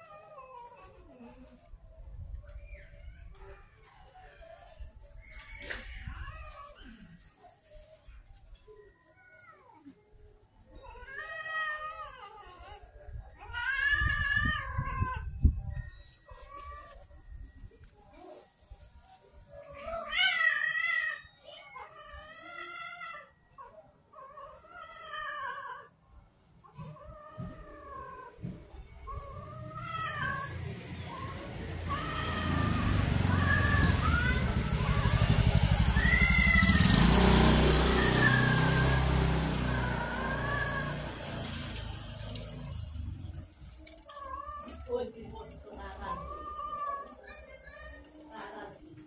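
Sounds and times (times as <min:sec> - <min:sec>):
cats yowling: 0:00.0 - 0:01.4, 0:05.2 - 0:07.2, 0:10.7 - 0:15.4, 0:19.6 - 0:26.0, 0:26.7 - 0:42.8, 0:44.0 - 0:47.5
motorbike passing by: 0:29.0 - 0:47.1.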